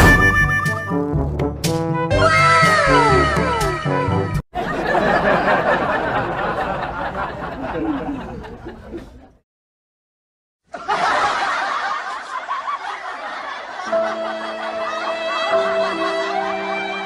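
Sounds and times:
people laughing and chuckling: 4.6s - 9.4s, 10.7s - 16.9s.

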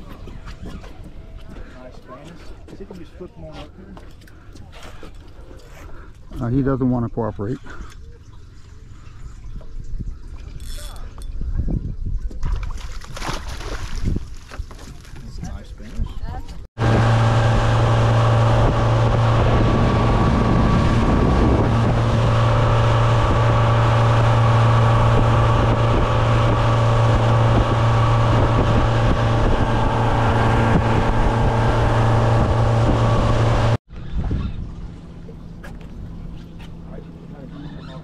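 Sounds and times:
wind buffeting microphone: 11.2s - 35.0s
boat motor humming: 16.4s - 38.0s
water rushing past hull: 16.8s - 37.3s.

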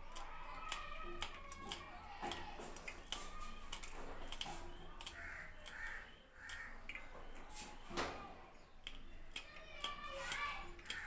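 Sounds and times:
knife slicing chillies: 0.0s - 6.0s.

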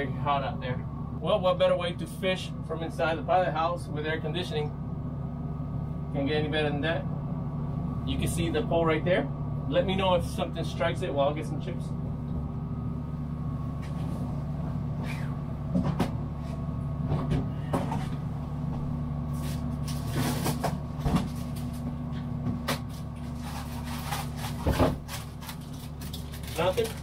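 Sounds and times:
air conditioner humming: 0.0s - 27.0s
rummaging in a cupboard: 19.3s - 27.0s.

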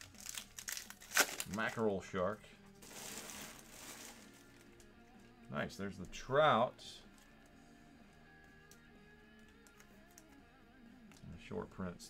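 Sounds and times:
trading cards rustling: 0.0s - 1.7s, 2.8s - 4.9s
faint background music: 0.0s - 12.0s.

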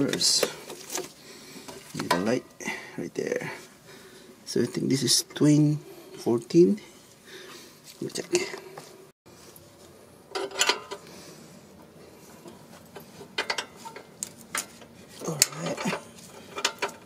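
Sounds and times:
metal tools clinking: 10.3s - 11.0s, 12.8s - 17.0s.

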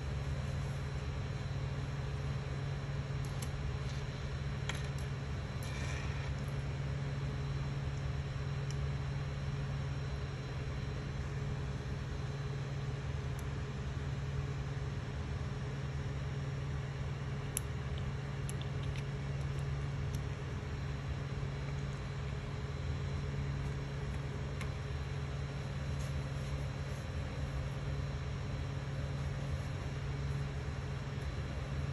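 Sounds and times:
printer fans humming: 19.0s - 31.9s.

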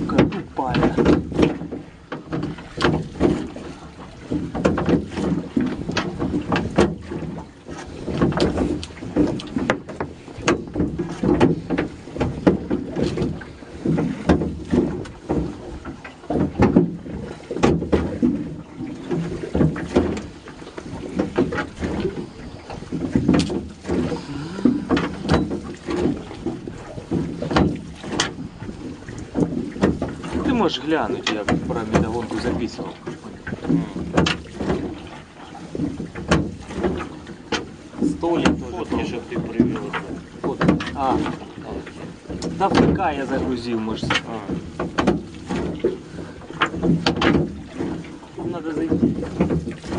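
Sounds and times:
wet net dragging: 1.3s - 49.9s
knocks on metal boat hull: 14.0s - 18.5s, 44.1s - 46.0s.

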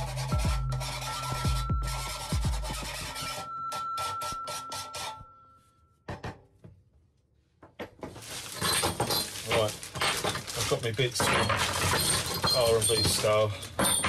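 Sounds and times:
hand file rasping on steel: 0.0s - 5.2s
knock: 6.1s - 6.8s.

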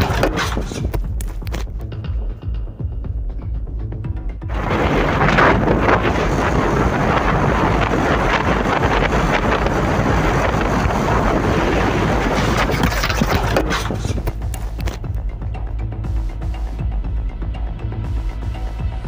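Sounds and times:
wind buffeting microphone: 4.5s - 15.3s.

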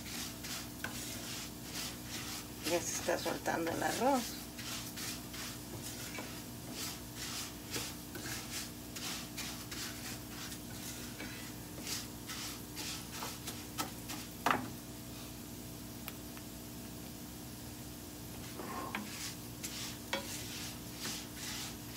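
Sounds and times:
spoon scraping rice in pan: 0.0s - 14.4s, 18.9s - 21.9s.

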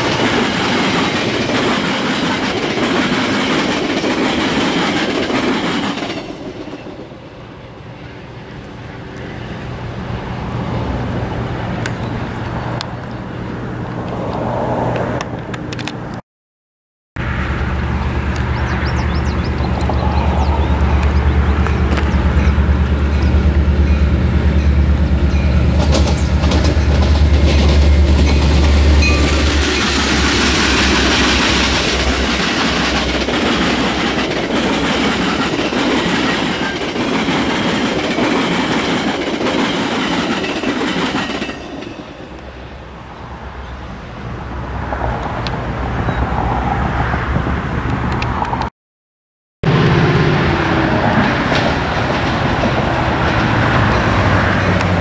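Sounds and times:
train wheels clattering over rail joints: 0.0s - 6.9s, 25.3s - 42.0s, 51.0s - 55.0s
diesel locomotive engine droning: 0.0s - 16.2s, 17.2s - 48.6s, 49.6s - 55.0s.

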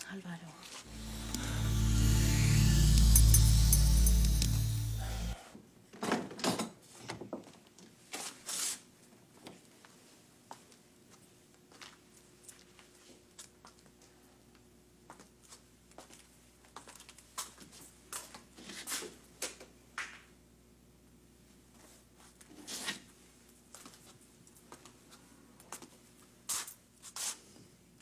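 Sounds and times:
low steady hum: 0.9s - 5.4s.

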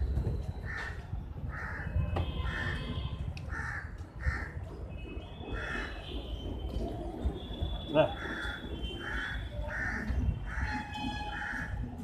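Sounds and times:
crows cawing: 0.7s - 2.9s, 3.5s - 4.6s, 5.6s - 6.0s, 8.2s - 11.8s.

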